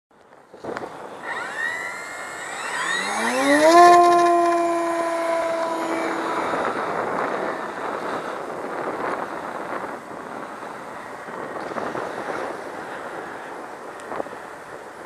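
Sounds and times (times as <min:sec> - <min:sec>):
electric motors whining: 0:00.9 - 0:08.9.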